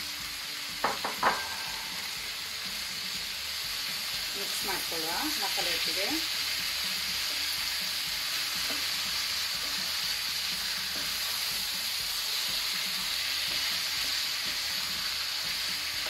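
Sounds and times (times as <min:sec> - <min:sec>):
chicken sizzling in a pan: 0:00.0 - 0:16.0.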